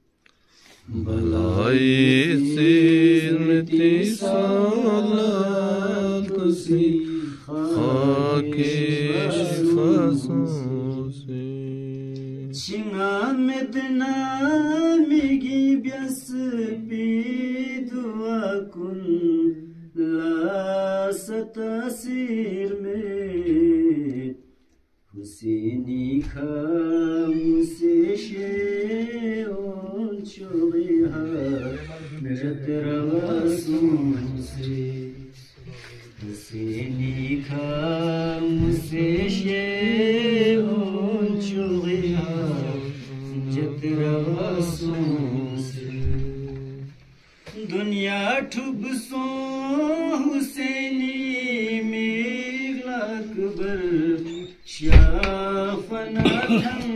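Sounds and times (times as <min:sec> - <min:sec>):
devotional chanting: 0:00.0 - 0:56.9.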